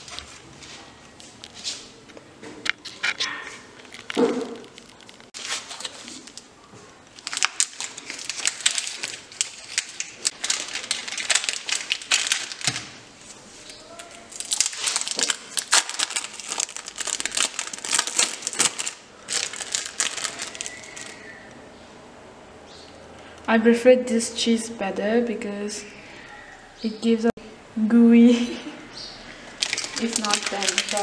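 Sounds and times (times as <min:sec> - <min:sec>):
thin wrapping crinkling: 0:00.0 - 0:02.0, 0:02.7 - 0:21.6, 0:29.4 - 0:31.0.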